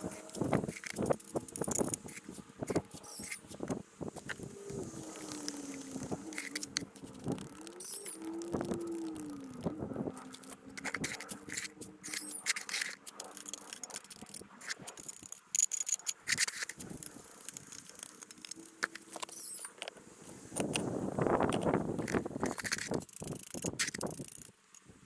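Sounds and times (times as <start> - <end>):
shovel scraping earth: 0.0 - 8.2, 10.2 - 19.6.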